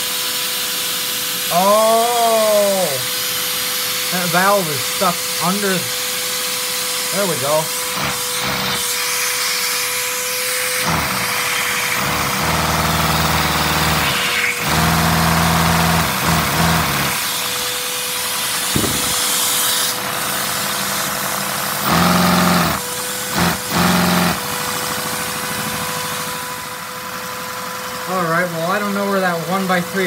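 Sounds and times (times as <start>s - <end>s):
toy engine cylinders buzzing: 0.0s - 30.0s
vacuum cleaner whining: 0.0s - 30.0s.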